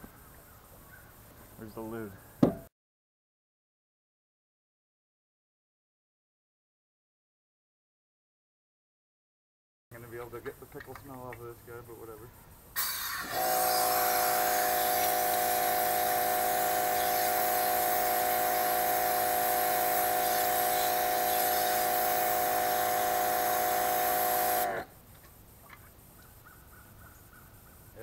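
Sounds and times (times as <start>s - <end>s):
pressure washer motor whining: 12.8s - 24.9s
water spray hissing on plastic: 12.8s - 24.9s.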